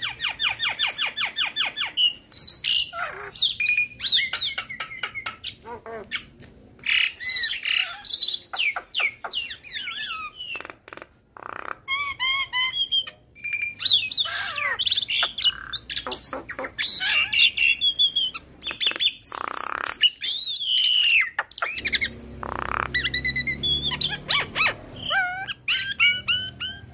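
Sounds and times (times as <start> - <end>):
myna singing whistles and squawks: 11.9 - 26.9.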